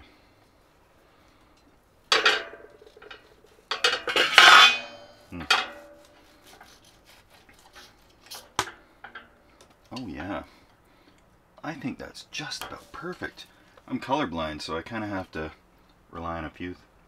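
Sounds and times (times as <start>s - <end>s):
ringing metallic clatter: 2.1s - 6.0s.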